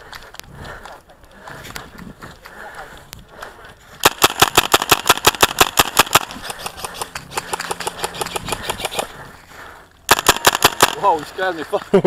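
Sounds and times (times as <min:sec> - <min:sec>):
airsoft rifle automatic fire: 0:04.0 - 0:09.0, 0:10.1 - 0:11.2.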